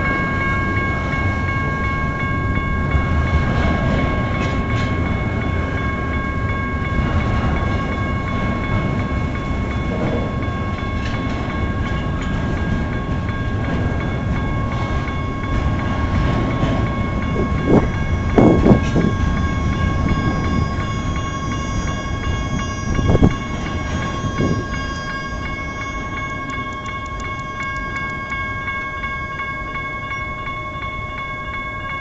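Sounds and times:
electronic crossing bell ringing: 0:00.0 - 0:32.0
freight train passing: 0:00.0 - 0:32.0
train cars knocking: 0:00.0 - 0:32.0.

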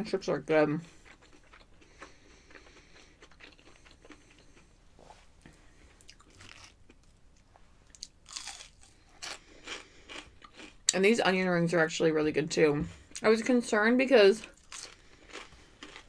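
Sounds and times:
close-up chewing: 0:00.8 - 0:04.8, 0:05.4 - 0:11.0, 0:14.4 - 0:16.0
crunchy bites into fried food: 0:08.0 - 0:10.8.

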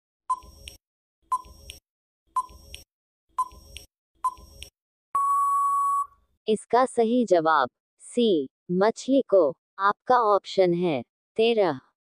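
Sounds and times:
long steady beep: 0:05.2 - 0:06.2
short electronic beeps: 0:05.2 - 0:06.2.

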